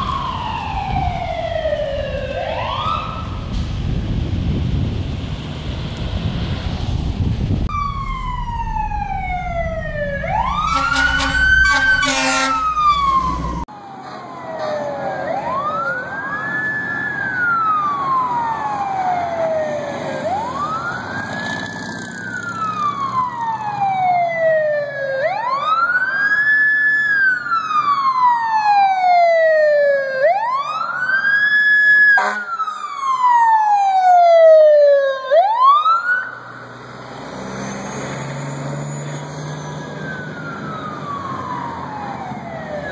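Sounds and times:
fire engine siren wailing: 0.0s - 3.8s, 7.6s - 42.9s
road rumble: 0.0s - 42.9s
short stuttering siren blasts: 7.7s - 26.1s, 28.0s - 42.9s.

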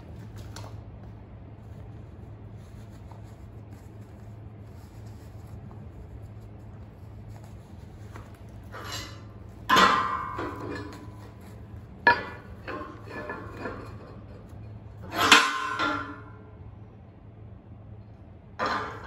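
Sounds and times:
steel plate clanking on beam: 8.7s - 14.4s, 15.0s - 16.5s, 18.6s - 19.0s.

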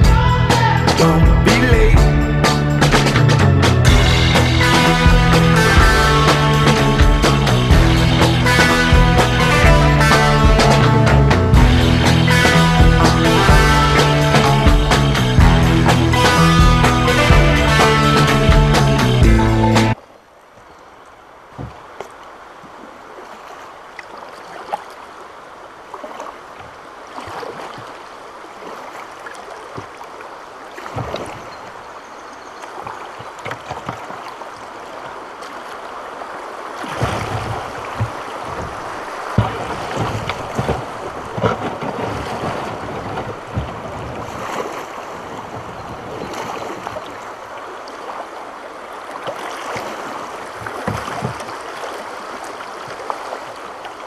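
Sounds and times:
river water rushing: 0.0s - 54.0s
knocks against boat hull: 37.2s - 41.8s.

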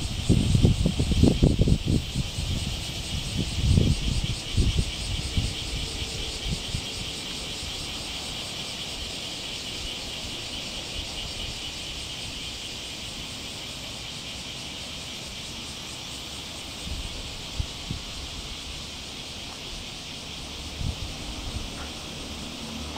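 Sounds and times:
insects chirring: 0.0s - 22.9s.

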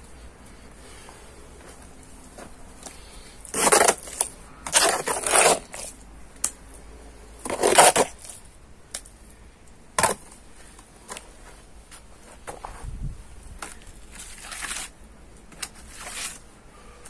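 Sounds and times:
scraping crunching noise: 0.8s - 6.1s, 7.4s - 8.5s, 10.0s - 16.5s.

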